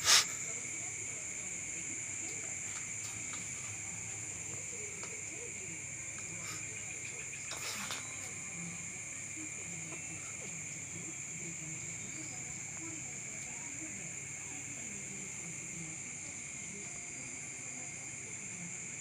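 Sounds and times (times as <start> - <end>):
crickets chirring: 0.0 - 19.0
brief rustle: 7.4 - 8.3.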